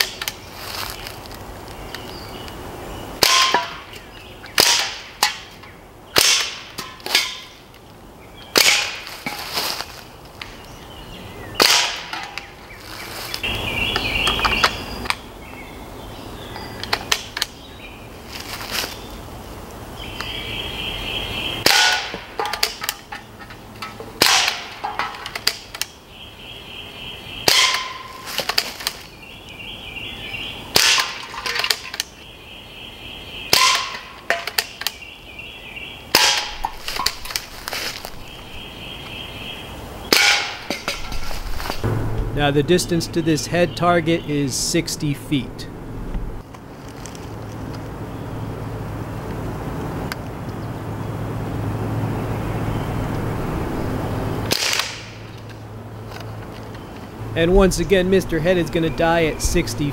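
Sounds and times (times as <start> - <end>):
pellet rifle shots: 3.2 - 3.8, 4.6 - 5.5, 6.2 - 7.5, 8.5 - 9.1, 11.6 - 12.2, 21.6 - 23.0, 24.2 - 25.7, 27.4 - 28.2, 30.7 - 31.9, 33.5 - 34.8, 36.1 - 37.2, 40.1 - 40.9, 54.5 - 55.2.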